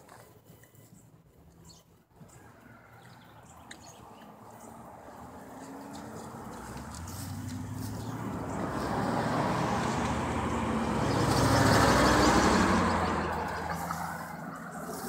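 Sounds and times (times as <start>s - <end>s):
vehicle passing by: 4.0s - 15.0s.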